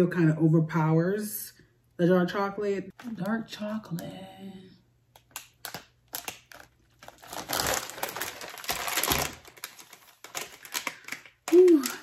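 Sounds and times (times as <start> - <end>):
plastic wrapper crinkling: 5.1 - 12.0.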